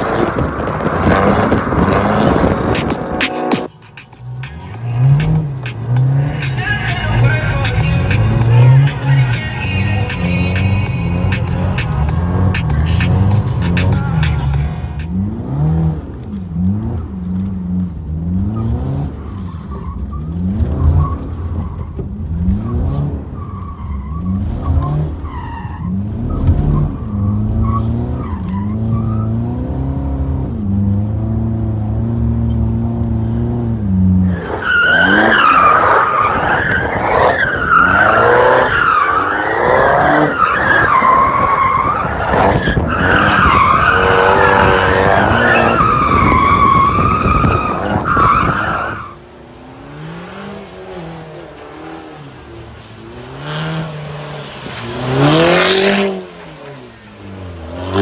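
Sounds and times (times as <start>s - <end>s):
car engine revving: 0.0s - 58.0s
tyre squeal: 18.4s - 29.9s, 34.2s - 49.2s.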